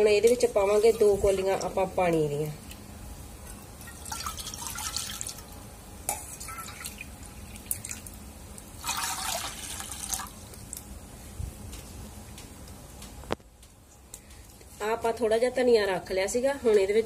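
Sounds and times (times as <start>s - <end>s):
water pouring into metal pan: 3.8s - 5.4s, 6.4s - 8.1s, 8.8s - 10.3s.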